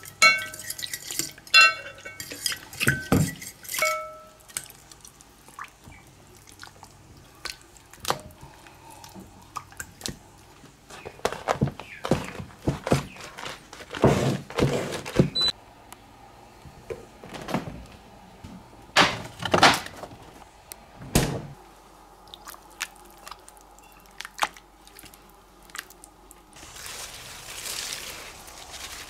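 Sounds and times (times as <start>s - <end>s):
glass bowl knocks and clinks: 1.6s - 2.2s, 2.8s - 4.3s
loud thunks: 21.0s - 21.6s.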